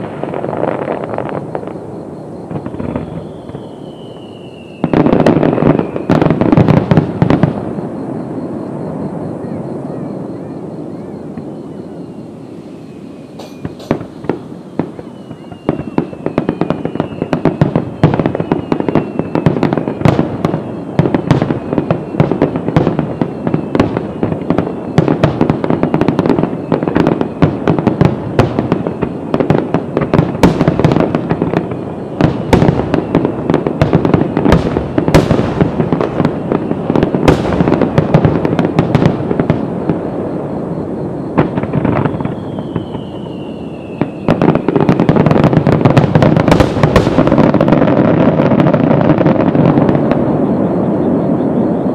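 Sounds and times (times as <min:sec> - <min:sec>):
fireworks booming and crackling: 0:00.0 - 0:51.9
high falling whistle: 0:02.5 - 0:06.2, 0:07.8 - 0:21.0, 0:42.0 - 0:44.8.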